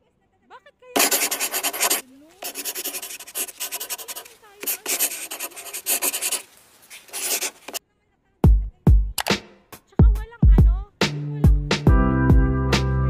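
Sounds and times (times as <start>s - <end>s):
pen scribbling on paper: 1.0s - 7.8s
music: 8.4s - 13.0s.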